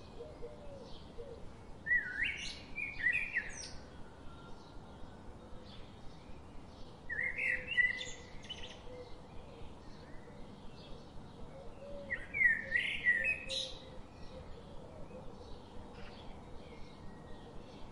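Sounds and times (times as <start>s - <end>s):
bird chirping: 0.0s - 17.9s.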